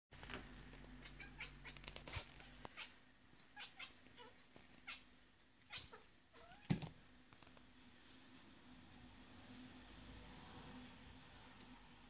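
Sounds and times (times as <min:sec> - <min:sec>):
cat chirping and meowing: 0:01.0 - 0:01.8, 0:02.7 - 0:06.7.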